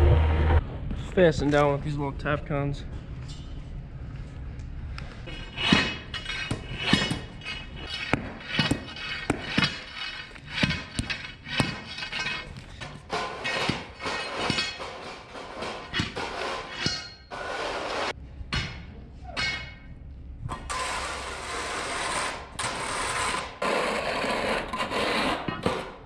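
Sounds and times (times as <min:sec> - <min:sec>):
steel bar striking concrete: 0:05.3 - 0:19.9.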